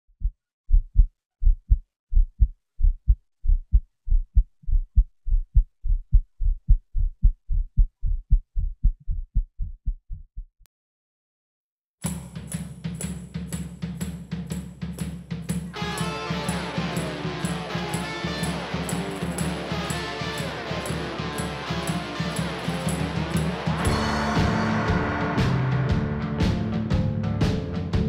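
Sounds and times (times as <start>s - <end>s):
heartbeat thumps: 0.1s - 10.6s
music with drums: 12.0s - 28.0s.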